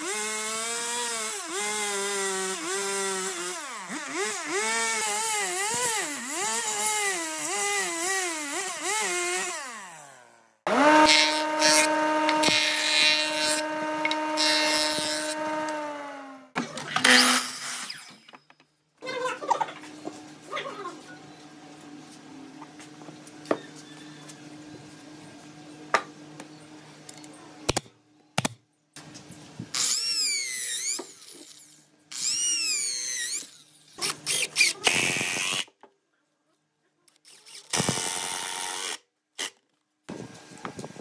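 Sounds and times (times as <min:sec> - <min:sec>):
electric drill boring into wood: 0:00.0 - 0:16.4, 0:17.0 - 0:18.2, 0:29.7 - 0:35.7, 0:37.6 - 0:39.5.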